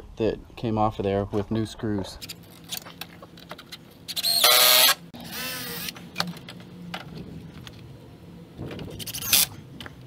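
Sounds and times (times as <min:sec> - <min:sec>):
cordless power driver whining: 0:04.1 - 0:06.0.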